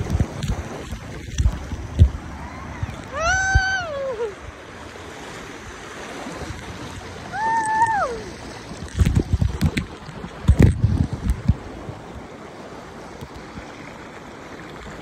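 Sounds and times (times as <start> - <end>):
river water rushing: 0.0 - 15.0
person shouting: 3.2 - 4.4, 7.3 - 8.3.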